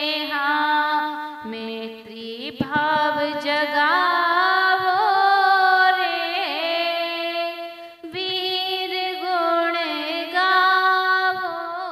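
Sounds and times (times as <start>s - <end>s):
woman singing devotional song: 0.0s - 11.9s.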